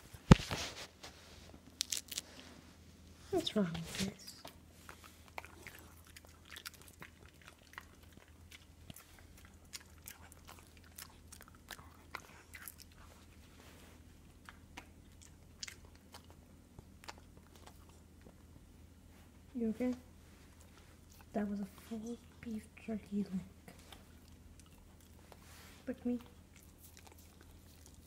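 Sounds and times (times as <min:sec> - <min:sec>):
dog chewing: 0:04.8 - 0:13.6, 0:14.2 - 0:18.4, 0:23.6 - 0:25.6, 0:26.4 - 0:28.0.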